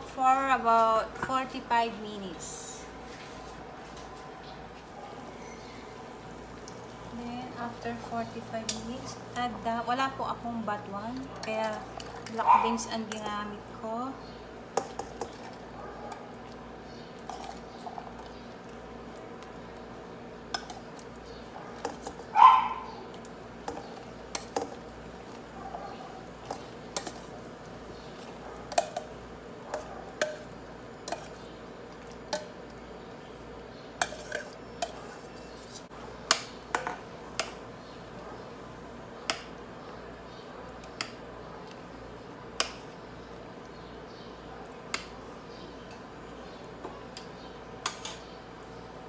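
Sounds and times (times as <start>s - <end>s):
background hum: 0.0s - 49.0s
metal spoon clinking on pans: 29.8s - 30.5s.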